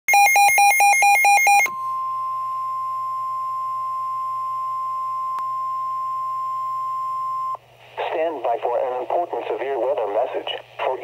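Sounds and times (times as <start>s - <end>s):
steady alarm tone: 0.1s - 7.6s.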